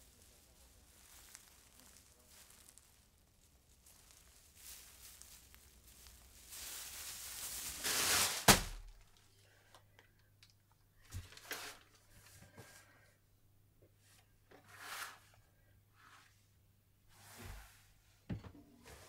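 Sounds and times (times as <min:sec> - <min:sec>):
papers rustling: 0:00.0 - 0:09.3.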